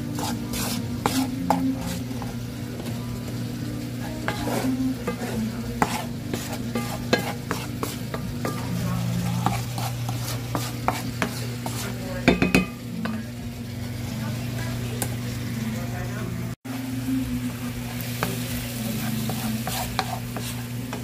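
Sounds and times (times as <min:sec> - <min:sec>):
wooden spoon stirring: 0:00.0 - 0:03.4, 0:04.0 - 0:13.3, 0:18.9 - 0:21.0
potato masher in steel pot: 0:00.0 - 0:13.3, 0:17.9 - 0:21.0
frying pan sizzling: 0:00.0 - 0:21.0.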